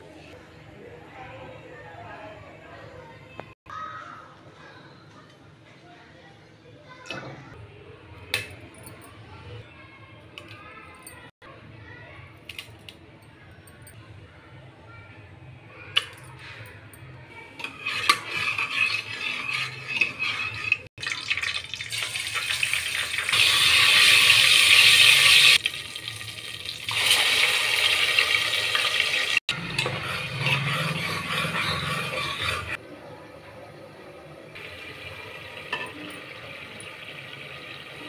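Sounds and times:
spices sizzling in hot oil: 0:17.6 - 0:29.9.

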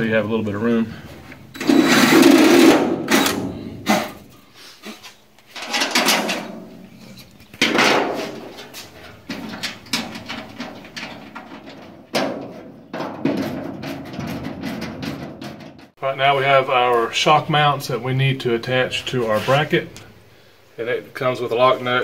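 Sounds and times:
metal parts clunking and scraping: 0:01.4 - 0:16.0.

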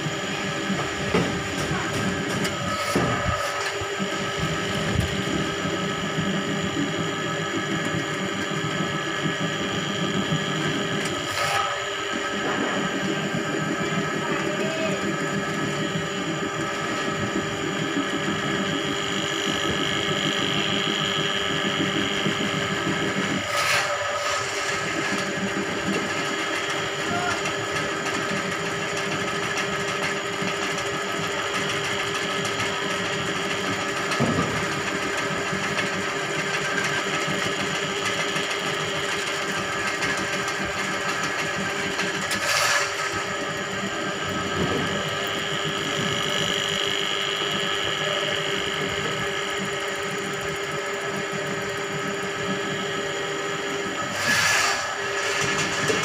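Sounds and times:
drain cleaning machine humming: 0:00.0 - 0:56.0.

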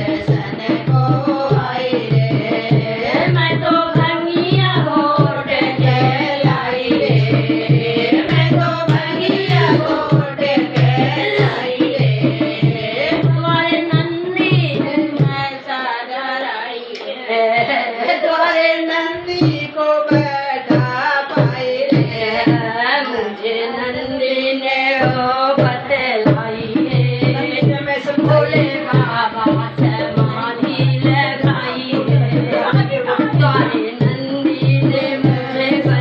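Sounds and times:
hand drum beat: 0:00.0 - 0:15.5, 0:25.0 - 0:36.0
women singing devotional song: 0:00.0 - 0:36.0.

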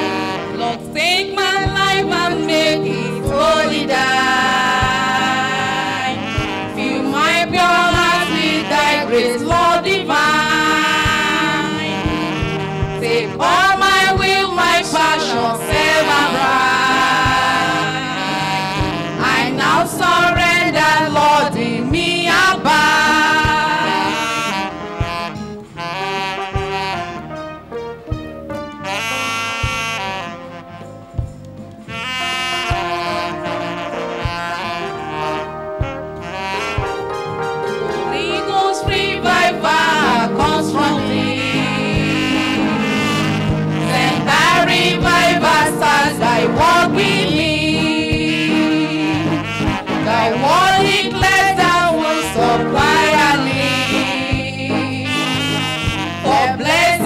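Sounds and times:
women singing a hymn: 0:00.0 - 0:24.9, 0:37.8 - 0:57.0
instrumental backing: 0:00.0 - 0:57.0
soft low drum beat: 0:01.0 - 0:08.5, 0:09.2 - 0:18.1, 0:18.8 - 0:23.9, 0:31.1 - 0:31.6, 0:34.1 - 0:34.6.

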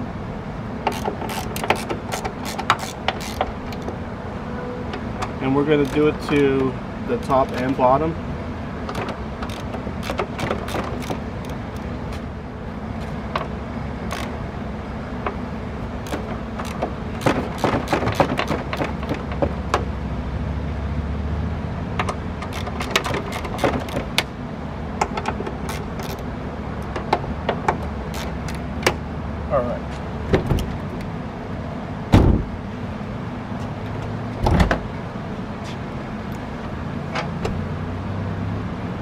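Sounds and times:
socket wrench clicking: 0:00.8 - 0:04.0, 0:05.8 - 0:06.5, 0:08.9 - 0:11.9, 0:14.1 - 0:14.3, 0:16.0 - 0:19.2, 0:22.0 - 0:24.3, 0:25.0 - 0:26.2, 0:28.1 - 0:28.7.

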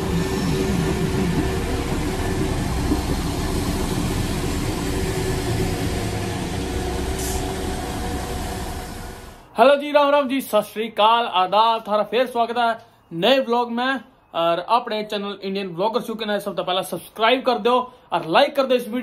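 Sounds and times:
vehicle engine rumble: 0:00.0 - 0:09.5
short hiss: 0:07.1 - 0:07.7.

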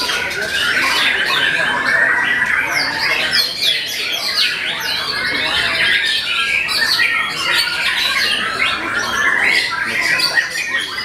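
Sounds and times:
birds singing whistled sweeps: 0:00.0 - 0:11.0.

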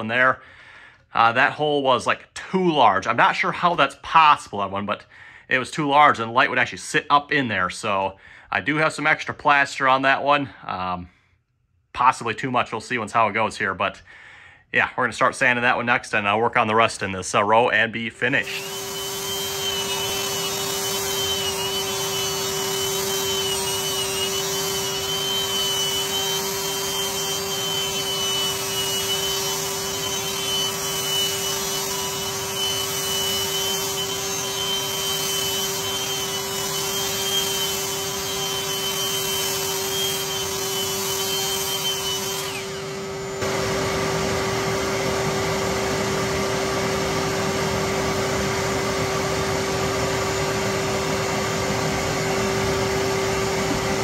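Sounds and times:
sander scraping plaster: 0:18.2 - 0:54.0
power sander motor whine: 0:18.4 - 0:54.0.

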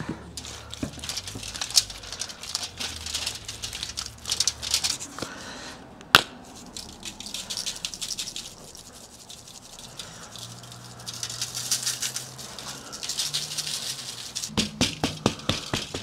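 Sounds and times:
hands rubbing wet meat: 0:00.2 - 0:05.4
spice shaker rattling: 0:00.3 - 0:05.2, 0:06.4 - 0:16.0.

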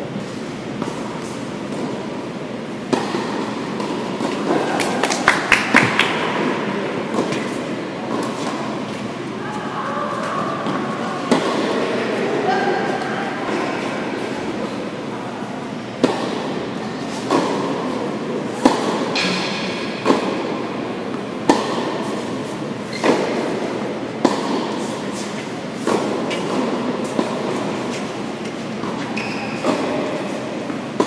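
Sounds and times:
indoor hall noise: 0:00.0 - 0:31.0
tennis ball hit by rackets: 0:02.8 - 0:08.8, 0:10.6 - 0:11.8, 0:16.0 - 0:31.0.

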